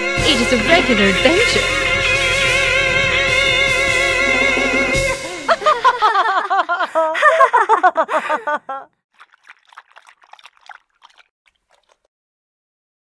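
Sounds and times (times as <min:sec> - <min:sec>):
woman laughing: 0:05.2 - 0:09.0.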